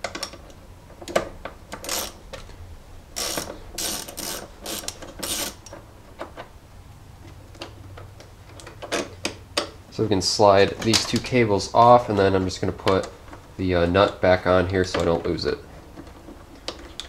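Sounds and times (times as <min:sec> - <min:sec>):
ratchet wrench clicking: 0:01.7 - 0:02.2, 0:03.2 - 0:05.7.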